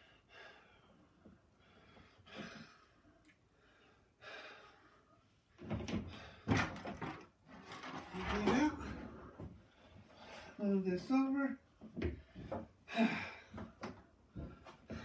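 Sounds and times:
man breathing heavily: 0.0 - 6.6, 12.1 - 15.0.

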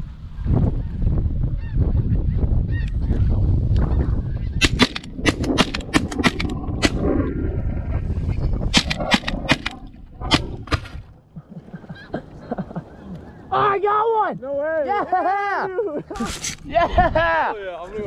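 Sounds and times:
wind rumble on microphone: 0.0 - 13.6, 16.2 - 18.0
shotgun shots: 4.6 - 7.0, 8.7 - 11.0.

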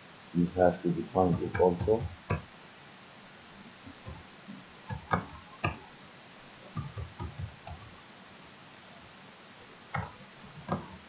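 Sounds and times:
faint steady hiss: 0.0 - 11.0
keyboard and mouse clicks: 4.9 - 5.8, 6.8 - 7.9, 9.9 - 11.0.

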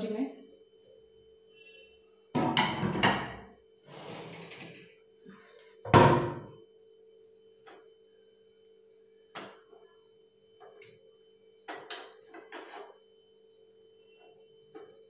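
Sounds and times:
faint steady hum: 0.0 - 15.0
metal scraping on counter: 2.6 - 4.9.

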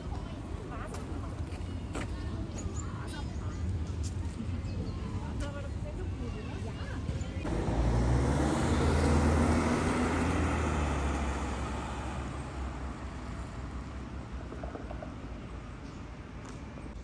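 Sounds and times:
vehicle passing by: 7.4 - 14.3.

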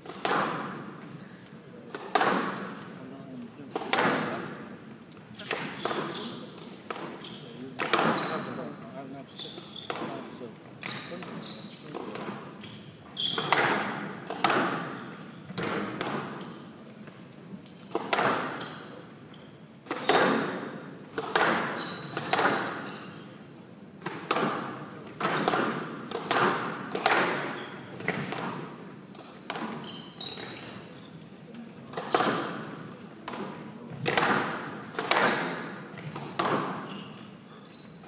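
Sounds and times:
ball striking court walls: 0.0 - 1.0, 1.9 - 2.9, 5.4 - 8.6, 10.8 - 16.6, 17.9 - 18.8, 19.8 - 22.9, 24.0 - 29.8, 31.9 - 37.0
racket smacking ball: 0.0 - 1.0, 1.9 - 2.8, 3.7 - 4.4, 7.8 - 8.2, 13.4 - 16.6, 17.9 - 18.6, 19.8 - 22.8, 24.0 - 29.8, 31.9 - 36.9
shoes squeaking on court: 5.3 - 13.9, 14.7 - 20.7, 21.3 - 23.5, 24.6 - 31.3, 31.9 - 34.3, 35.1 - 38.0.

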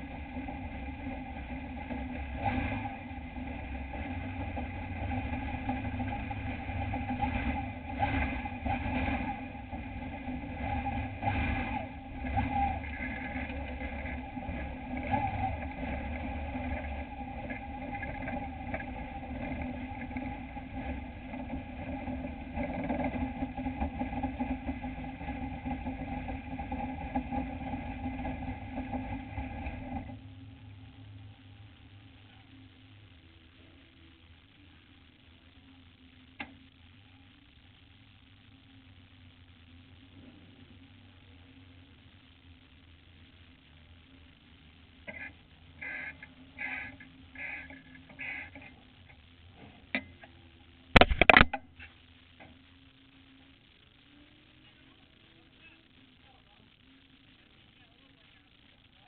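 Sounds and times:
truck engine idling: 0.0 - 31.5, 45.0 - 50.2.

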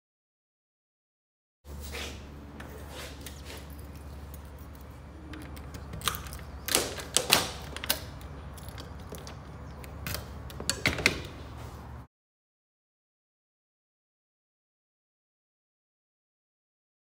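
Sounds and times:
sharp clicks and knocks: 5.3 - 11.4.

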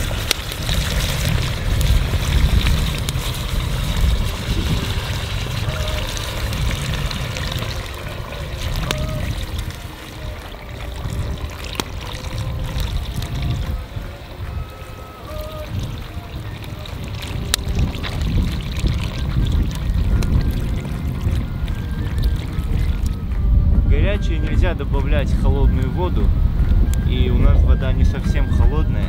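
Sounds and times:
water pouring into a pot: 0.0 - 23.2
wind rumble on microphone: 0.0 - 29.0.

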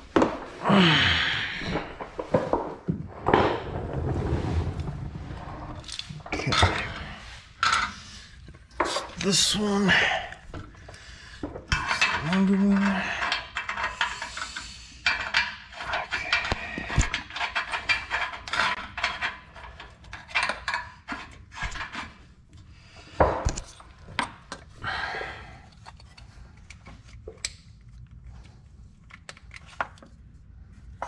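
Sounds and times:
wiring and plastic connector rattling: 15.0 - 22.2.

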